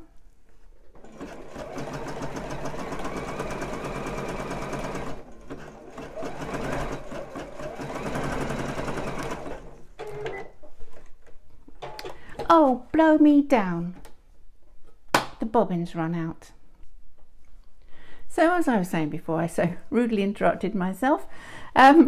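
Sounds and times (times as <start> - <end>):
sewing machine stitching: 0.9 - 10.5.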